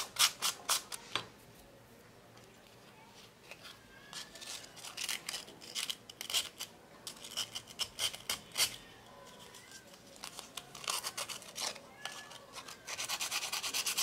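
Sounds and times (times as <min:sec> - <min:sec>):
sandpaper scratching on wire: 0:10.3 - 0:14.0.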